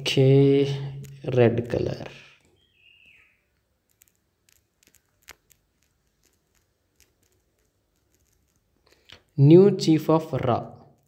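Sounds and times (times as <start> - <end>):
stylus tapping on tablet screen: 3.9 - 8.7.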